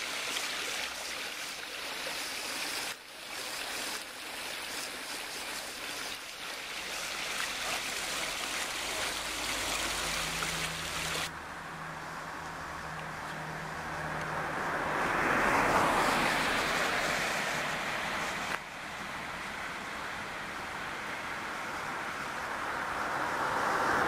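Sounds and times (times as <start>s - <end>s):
water rushing down stone channel: 0.0s - 11.3s, 14.8s - 19.8s.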